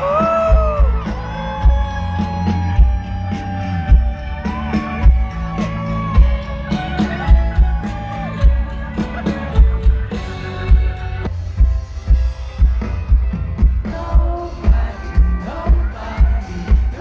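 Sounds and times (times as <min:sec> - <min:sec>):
live band playing: 0:00.0 - 0:17.0.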